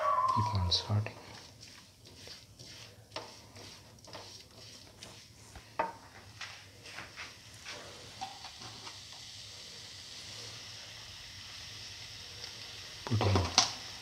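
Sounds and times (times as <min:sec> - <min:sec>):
spatula scraping frying pan: 0:00.0 - 0:06.0.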